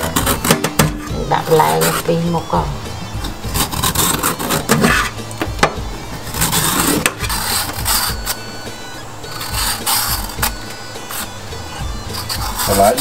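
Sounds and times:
peeler scraping cucumber skin: 0.0s - 2.1s, 3.4s - 5.2s, 6.2s - 8.5s, 12.0s - 13.0s.

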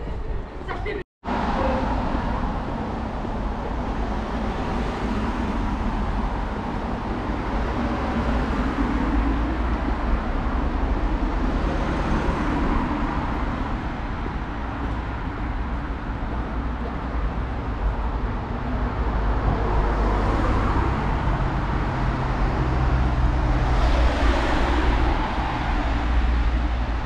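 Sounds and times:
city street ambience: 0.0s - 27.0s.

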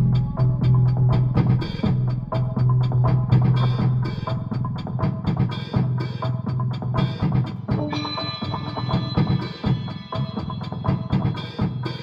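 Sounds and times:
bass line: 0.0s - 5.3s
drum beat: 0.0s - 12.0s.

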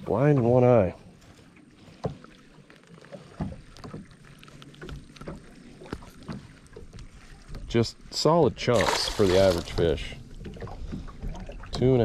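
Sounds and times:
knocks and clicks handling fish: 3.2s - 7.7s.

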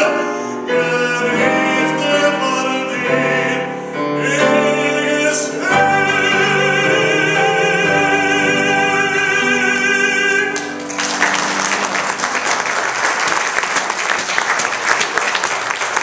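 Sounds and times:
man singing with vibrato: 0.0s - 10.8s
piano accompaniment: 0.0s - 16.0s
audience applauding: 10.4s - 16.0s.

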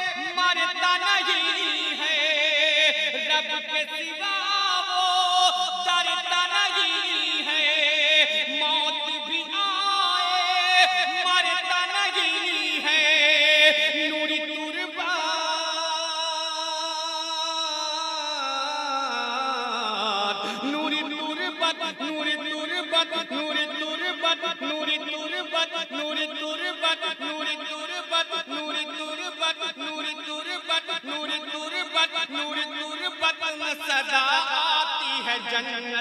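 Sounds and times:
man singing into a microphone: 0.0s - 36.0s.

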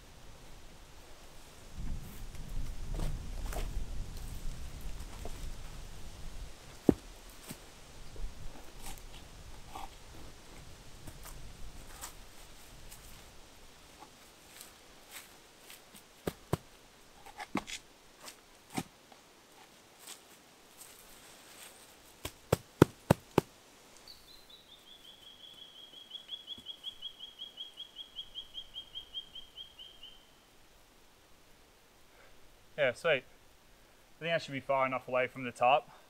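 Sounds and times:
rocks knocking and scraping: 6.7s - 7.6s, 14.0s - 18.9s, 22.2s - 23.5s.

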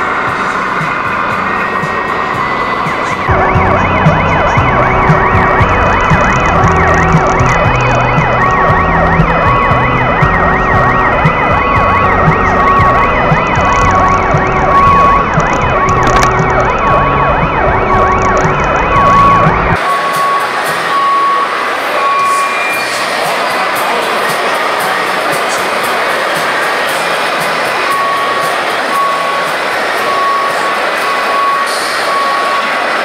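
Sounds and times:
music with bass line: 0.0s - 21.6s
electronic sirens wailing: 0.0s - 33.0s.

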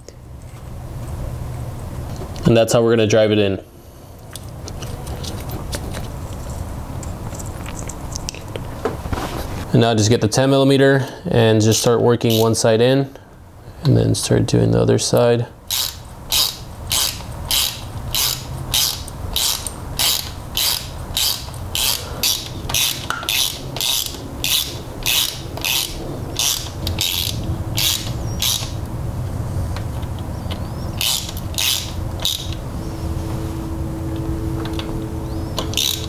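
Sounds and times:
hand ratchet clicking: 15.7s - 28.8s, 30.0s - 32.6s, 35.6s - 36.0s.

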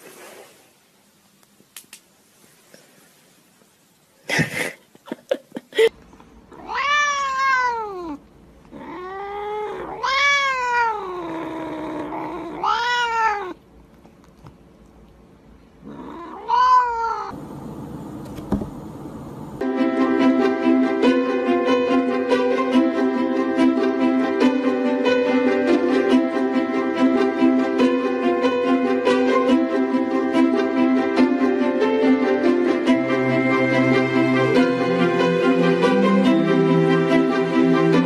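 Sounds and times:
cat yowling: 6.5s - 13.6s, 15.9s - 17.4s.

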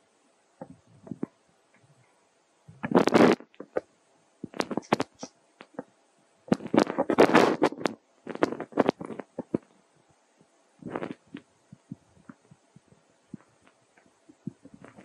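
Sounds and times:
rustling: 0.6s - 5.9s, 6.5s - 9.8s, 10.8s - 15.0s.

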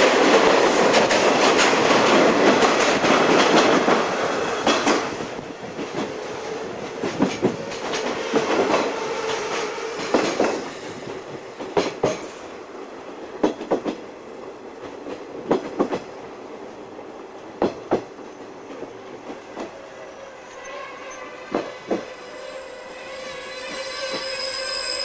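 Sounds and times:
train wheels clicking over rail joints: 0.1s - 12.5s, 13.3s - 14.1s, 14.8s - 16.1s
faint wheel squeal: 22.0s - 25.0s.

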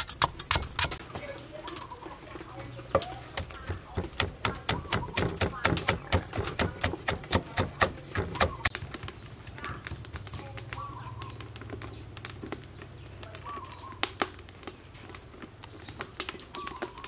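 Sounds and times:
cleaver chopping on wooden board: 0.0s - 1.0s, 2.9s - 8.8s
birds chirping faintly: 0.4s - 17.0s.

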